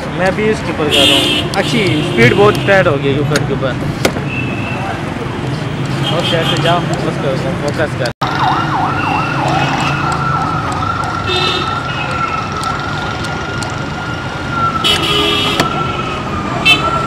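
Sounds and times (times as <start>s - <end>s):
low traffic rumble: 0.0s - 17.0s
vehicle siren yelping and wailing: 8.2s - 17.0s.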